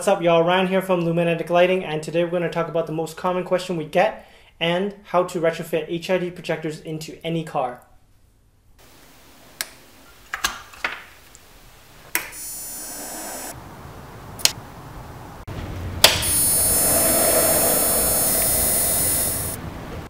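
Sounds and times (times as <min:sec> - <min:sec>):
electrical buzz with high whine: 0:11.4 - 0:20.0.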